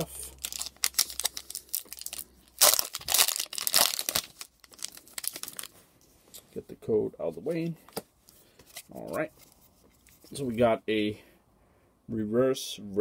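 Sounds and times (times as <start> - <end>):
foil wrapper crinkling and tearing: 0.3 - 5.7.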